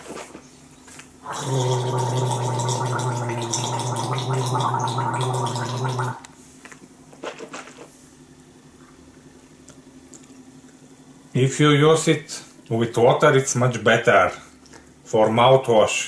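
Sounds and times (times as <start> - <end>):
man gargling: 1.2 - 6.2.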